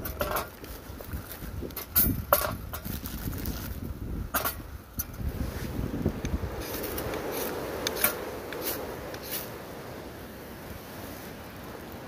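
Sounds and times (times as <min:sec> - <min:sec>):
wind hiss: 0:00.0 - 0:12.0
ferro rod scraping: 0:06.6 - 0:09.6.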